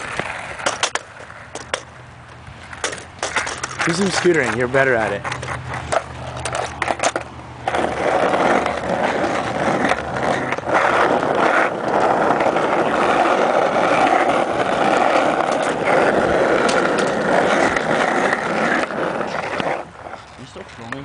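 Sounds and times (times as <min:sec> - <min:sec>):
hard wheels rolling on asphalt: 0:00.0 - 0:21.0.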